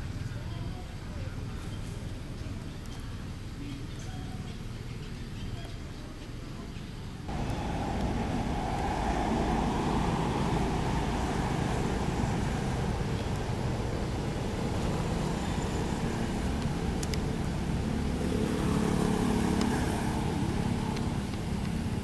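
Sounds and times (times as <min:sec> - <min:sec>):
vehicle engine rumbling: 0:07.1 - 0:22.0.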